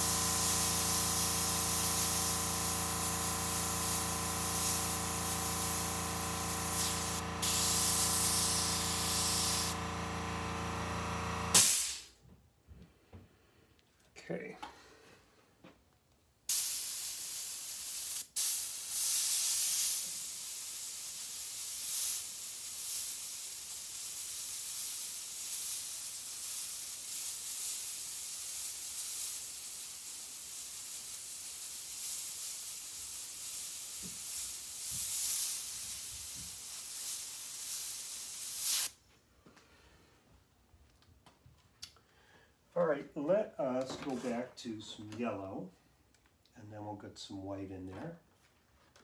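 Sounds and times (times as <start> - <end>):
airbrush hissing: 0.0 - 12.1, 16.5 - 38.9.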